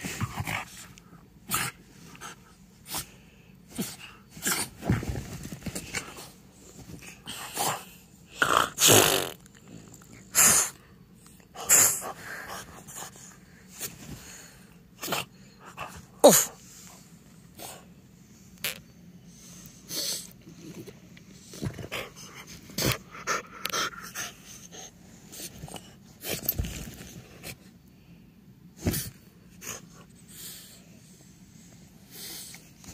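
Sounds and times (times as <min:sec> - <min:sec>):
dog snorting and snuffling: 0:03.7 - 0:10.8
dog grunt: 0:07.1 - 0:10.8, 0:15.0 - 0:16.6.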